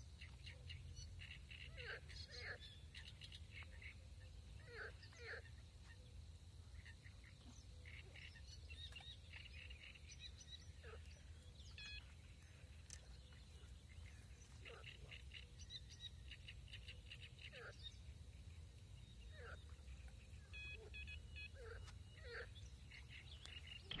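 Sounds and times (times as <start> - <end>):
small birds chirping: 0.1 - 24.0
sweeping bird calls: 19.2 - 24.0.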